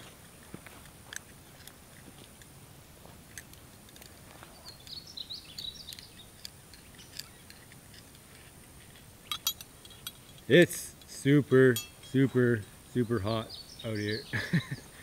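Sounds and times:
bird chirps: 4.4 - 7.8, 11.1 - 15.0.

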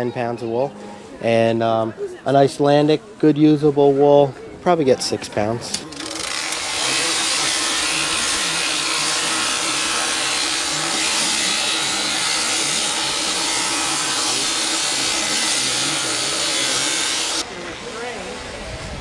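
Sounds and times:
electric shears cutting fleece: 5.8 - 18.4.

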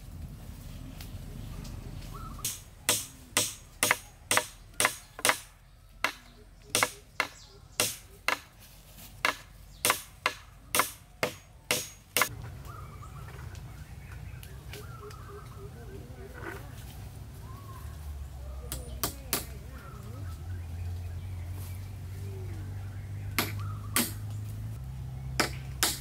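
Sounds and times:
blade chopping into wood: 23.4 - 24.3, 25.4 - 26.0.

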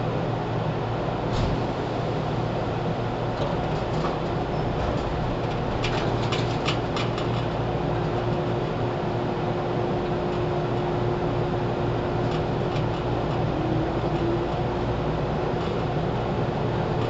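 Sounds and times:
train rumbling along track: 0.7 - 17.0.

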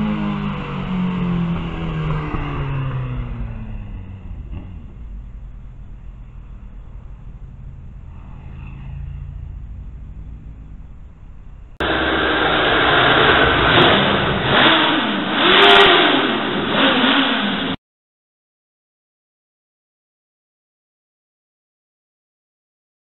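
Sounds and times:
low engine rumble: 0.0 - 15.4
motorcycle engine revving in tunnel: 0.0 - 17.8.

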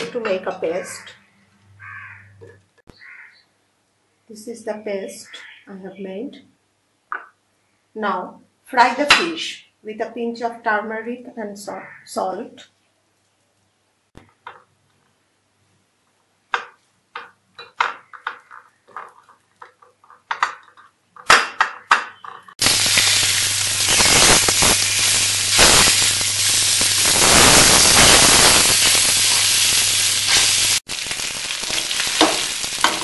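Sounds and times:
fish sizzling in hot oil: 22.6 - 33.0.

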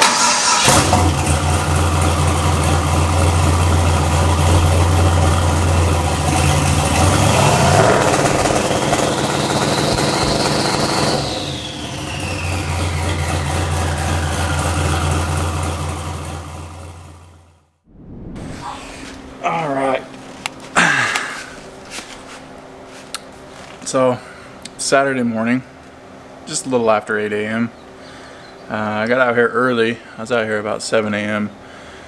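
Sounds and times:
engine rev: 0.0 - 19.4
car engine idling: 0.4 - 17.5
high whistle: 11.4 - 15.0.

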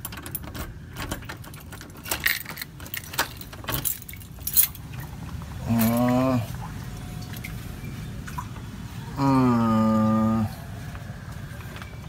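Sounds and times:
door lock clicks and rattles: 0.0 - 4.9.

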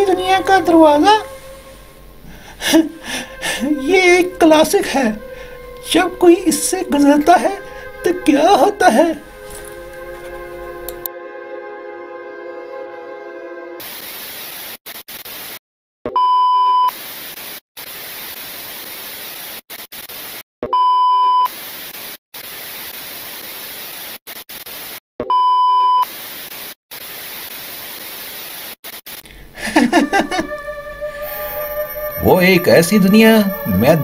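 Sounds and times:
television static hissing: 13.8 - 15.6, 16.9 - 20.4, 21.5 - 25.0, 26.0 - 29.5
loud steady beeps: 30.1 - 34.0.

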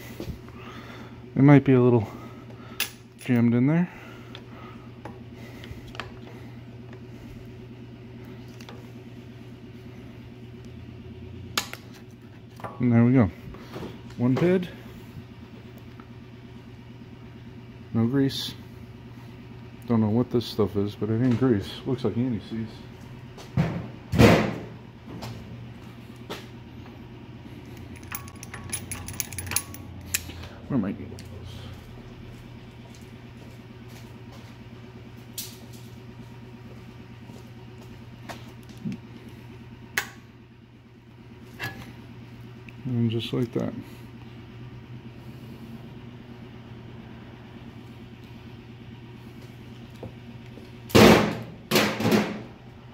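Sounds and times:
low machine hum: 0.0 - 52.9
locking pliers clicking: 28.0 - 30.4.

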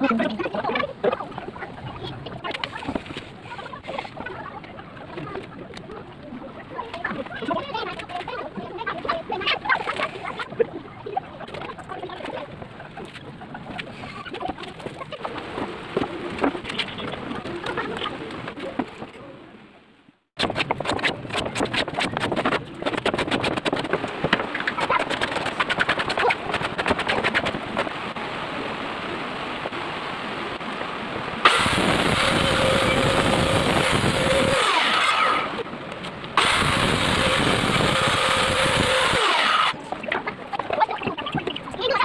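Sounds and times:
hand scraping wooden board: 20.4 - 27.9
circular saw cutting wood: 31.4 - 35.6, 36.4 - 39.8.

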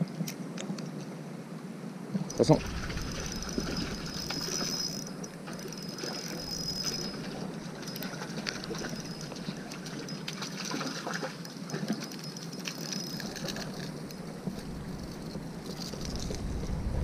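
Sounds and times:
reel clicks: 2.3 - 16.5
fishing reel being cranked: 2.6 - 10.2, 11.9 - 14.2.

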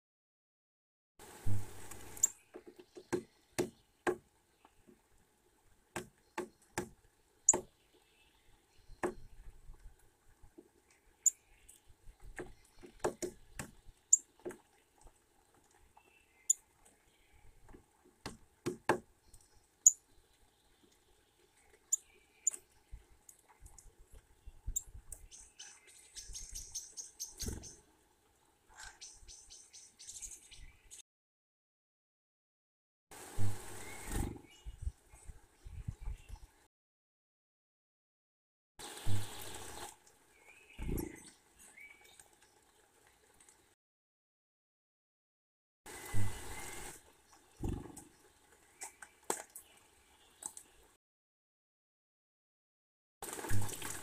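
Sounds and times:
wings fluttering: 26.3 - 27.8, 33.4 - 34.5, 47.6 - 48.1.

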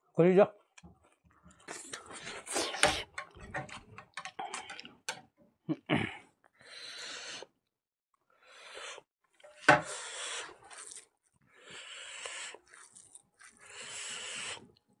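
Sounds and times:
chewing with lip smacking: 10.6 - 11.1, 12.2 - 14.8
hand squishing food: 12.5 - 13.7.

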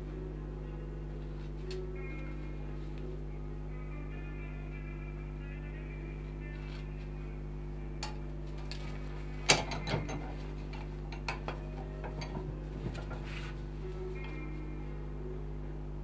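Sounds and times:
sharp metallic clack of a vise: 9.4 - 13.2
vise handle clicks and knocks: 9.5 - 13.2.

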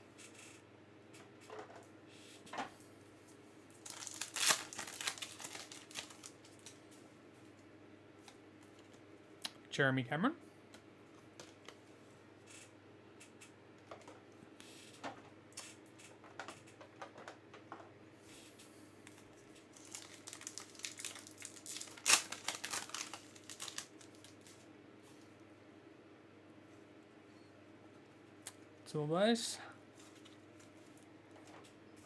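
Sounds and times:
pack wrappers crinkling: 3.7 - 6.8, 19.1 - 24.7.

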